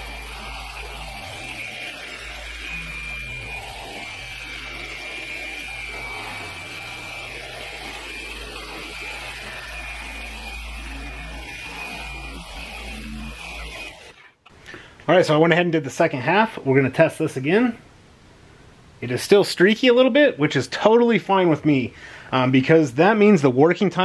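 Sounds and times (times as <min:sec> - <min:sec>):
electric polisher whining: 0:00.0 - 0:14.3.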